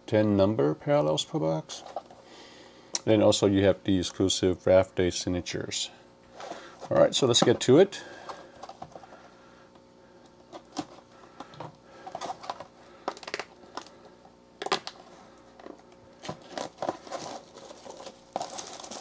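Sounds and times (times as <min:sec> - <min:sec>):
shrink wrap crinkling and tearing: 0:12.0 - 0:14.0, 0:14.6 - 0:19.0.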